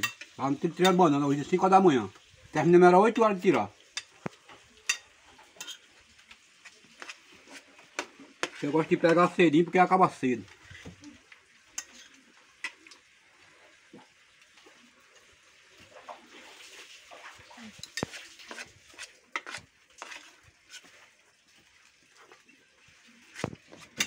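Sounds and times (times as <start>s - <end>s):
forks clinking on plates: 0.0s - 1.0s, 4.8s - 5.8s, 11.8s - 12.2s, 17.8s - 18.2s.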